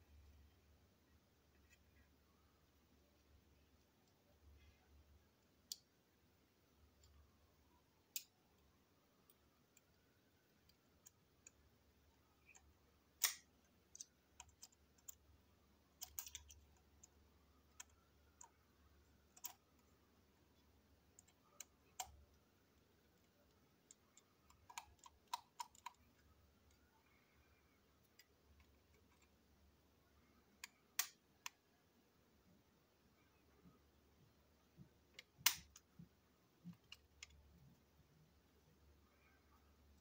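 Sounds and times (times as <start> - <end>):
plastic parts clicking: 12.4 - 15.3, 15.9 - 19.9, 23.1 - 26.8.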